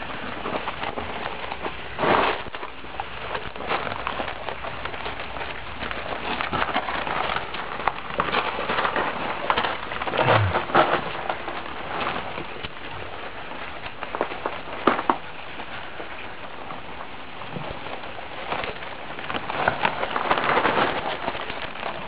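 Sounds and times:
puppies scratching and rustling: 0.0s - 22.0s
brief low falling sound: 10.2s - 10.7s.

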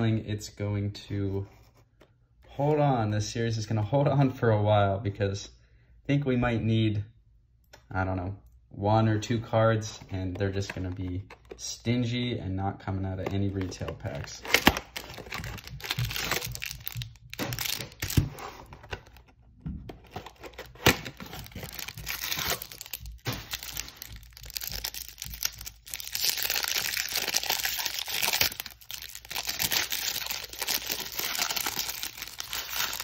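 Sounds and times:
plastic wrapper crinkling: 13.2s - 19.3s, 19.9s - 33.0s.

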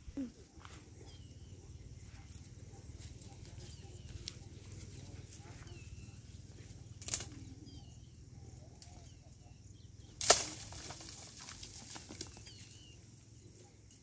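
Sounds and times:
faint bird chirps: 0.0s - 10.2s, 12.2s - 14.0s
hits on palm fronds: 10.2s - 12.4s
fronds rustling: 10.2s - 13.0s.

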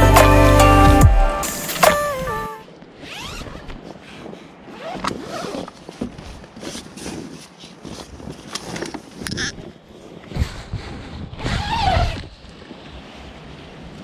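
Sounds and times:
tent fabric rustling: 3.0s - 12.4s.

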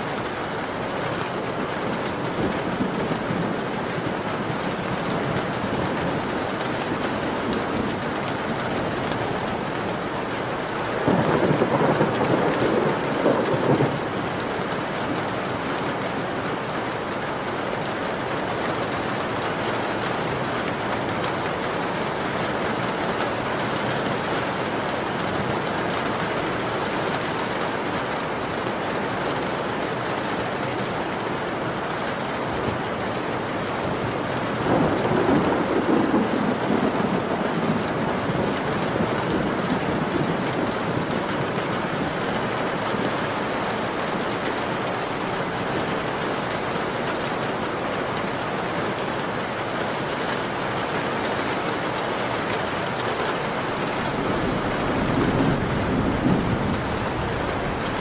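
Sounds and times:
heavy rain: 0.0s - 58.0s
thunder rumbling: 1.9s - 14.4s, 34.0s - 43.0s, 53.6s - 58.0s.

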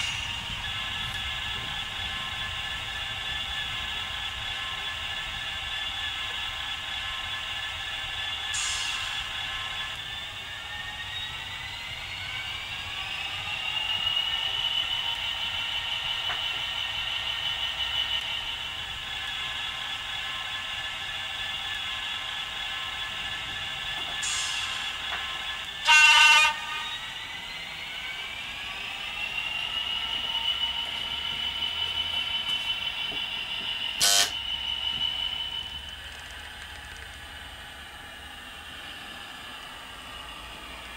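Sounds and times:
model locomotive diesel engine: 0.0s - 40.9s
locomotive horn blast: 25.8s - 26.9s.

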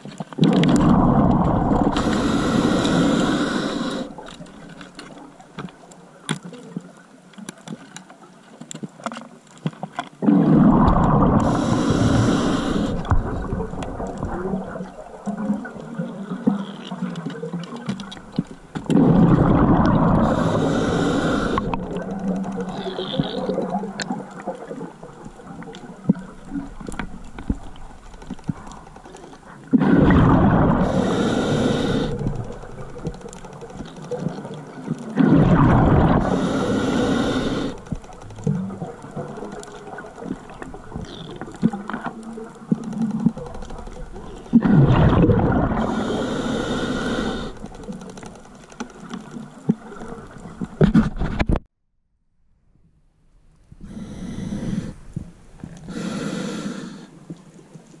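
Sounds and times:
faint clicks: 0.0s - 10.2s, 10.8s - 29.8s, 30.8s - 35.2s, 36.1s - 44.7s, 45.8s - 51.6s
bubbling scuba exhalation: 10.2s - 16.6s, 18.8s - 24.5s, 29.7s - 32.8s, 44.5s - 47.6s.

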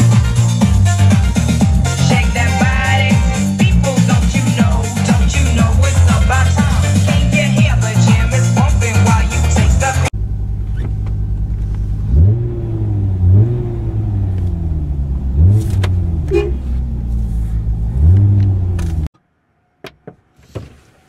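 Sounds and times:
car engine revving inside cabin: 8.6s - 19.1s.

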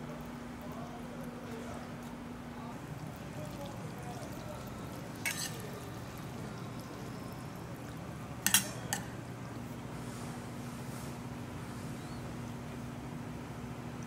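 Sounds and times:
utensils clinking on metal bowl: 5.1s - 6.2s, 8.4s - 9.1s.

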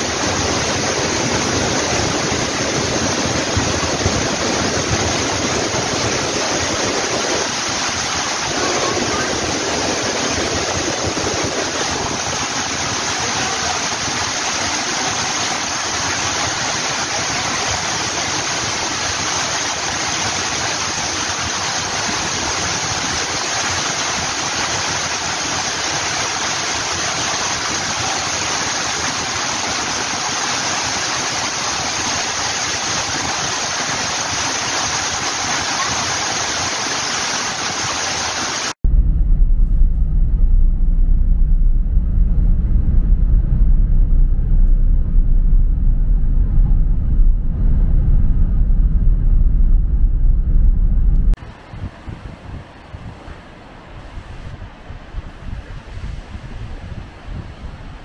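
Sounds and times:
water rushing: 0.0s - 38.8s
loud low rumble: 38.8s - 53.3s.

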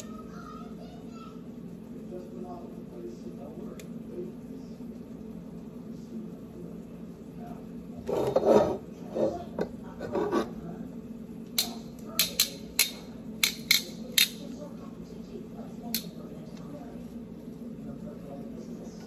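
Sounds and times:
metal tongs clicking: 11.6s - 14.4s.

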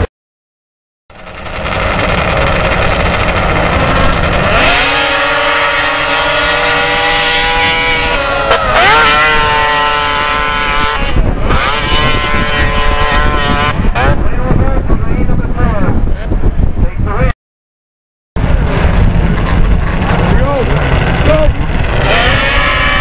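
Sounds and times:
high engine whine: 1.1s - 14.2s, 18.4s - 23.0s
snowmobile engines at full throttle: 1.1s - 16.3s, 18.4s - 23.0s.

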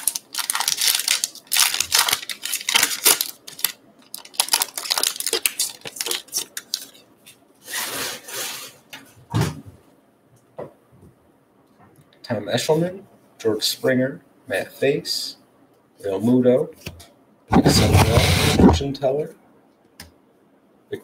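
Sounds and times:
foil wrapper crinkling and tearing: 0.0s - 7.0s
cards sliding rustle: 17.6s - 18.7s.

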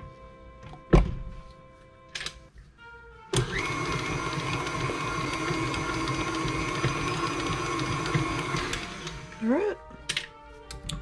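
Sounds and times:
whisk beating icing: 3.4s - 9.3s
stand mixer motor running: 3.4s - 9.4s.

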